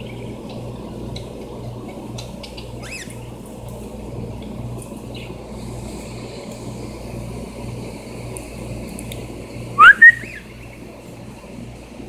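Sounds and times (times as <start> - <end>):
low steady hum: 0.0 - 12.0
cockatiel whistling: 9.8 - 10.4.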